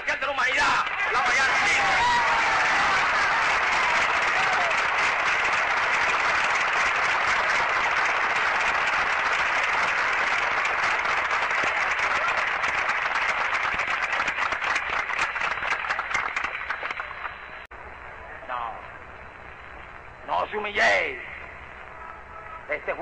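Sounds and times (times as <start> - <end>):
audience applauding: 0.5 - 17.7.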